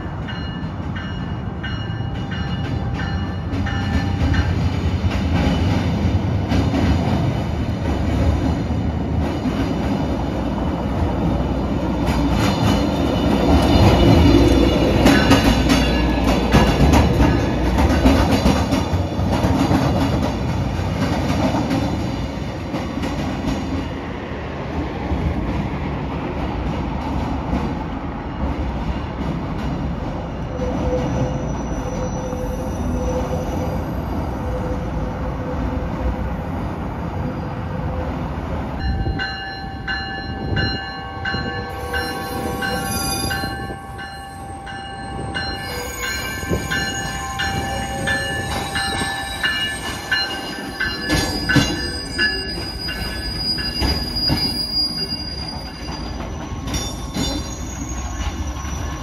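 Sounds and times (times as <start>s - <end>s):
light-rail car rumbling: 0.0s - 59.0s
train wheels squealing: 30.3s - 35.7s, 41.3s - 59.0s.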